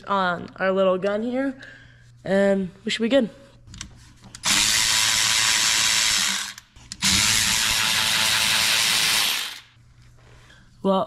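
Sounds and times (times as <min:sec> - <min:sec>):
cordless electric ratchet spinning: 0:04.4 - 0:09.8.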